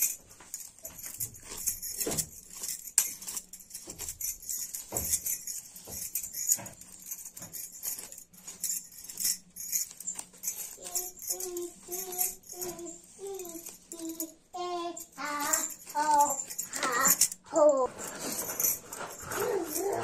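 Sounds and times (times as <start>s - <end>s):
bangles jingling: 0.0s - 20.0s
comb strokes through hair: 17.9s - 20.0s.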